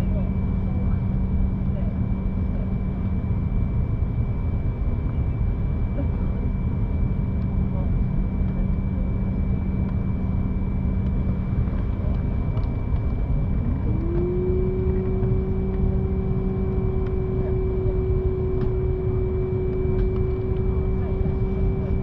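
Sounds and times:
airliner cabin rumble: 0.0 - 22.0
rising steady tone: 13.6 - 22.0.

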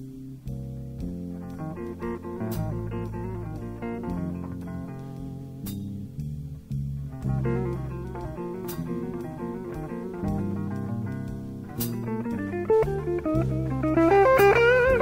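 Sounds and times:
bass guitar: 0.0 - 15.0
drum kit: 0.0 - 15.0
lead guitar single notes: 1.2 - 6.2, 7.0 - 15.0.

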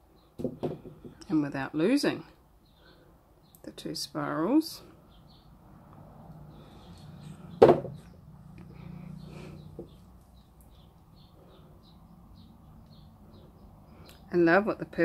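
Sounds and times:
birds chirping: 2.0 - 15.0
sharp knock: 7.6 - 8.0.

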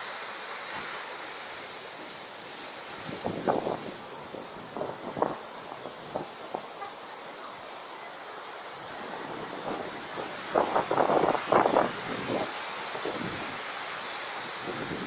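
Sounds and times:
surf washing up a beach: 0.0 - 15.0.

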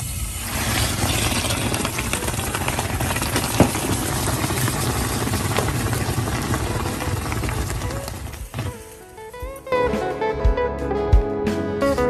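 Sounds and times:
water boiling in a pot: 0.0 - 8.9.

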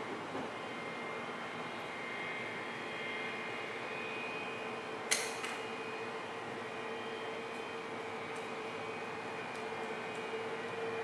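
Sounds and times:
distant jet engines whining: 0.0 - 11.0
sharp click: 5.1 - 5.6.

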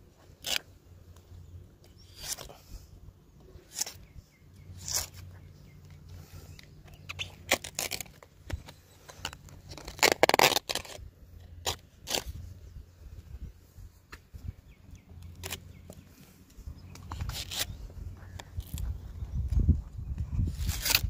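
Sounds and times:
knife scraping cuts: 0.4 - 0.7, 2.0 - 2.6, 3.6 - 4.0, 4.8 - 5.3, 11.6 - 12.4, 17.0 - 17.8, 20.6 - 21.0.

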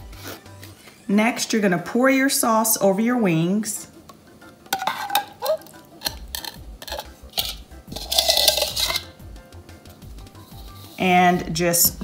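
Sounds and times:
bowl and spoon clinking: 4.7 - 9.1
spoon scraping bowl: 4.8 - 9.2, 10.4 - 11.2.

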